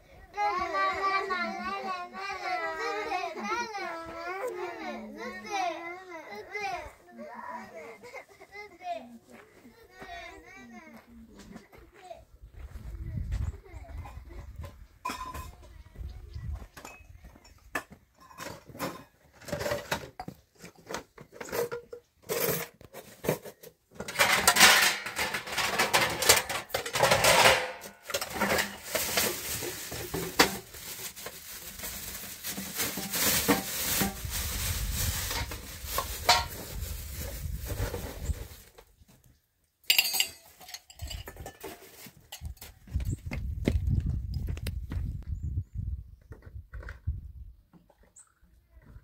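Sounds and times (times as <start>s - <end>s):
metal dishes clattering: 15.0s - 15.6s, 21.4s - 30.7s, 36.2s - 36.6s, 39.9s - 42.6s.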